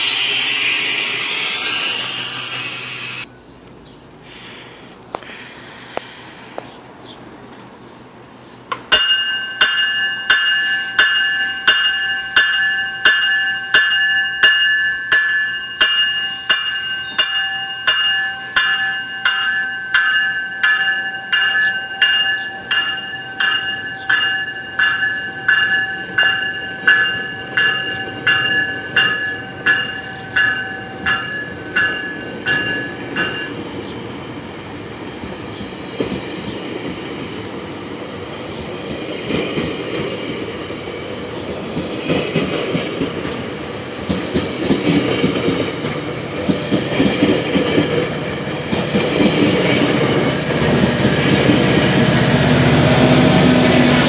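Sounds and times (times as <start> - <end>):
train wheels rumbling on rails: 6.1 - 54.0
train bell ringing: 8.9 - 34.0.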